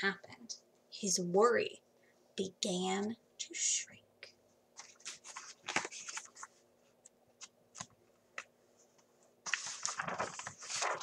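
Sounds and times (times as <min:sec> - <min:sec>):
book pages rustling: 0:04.8 - 0:11.0.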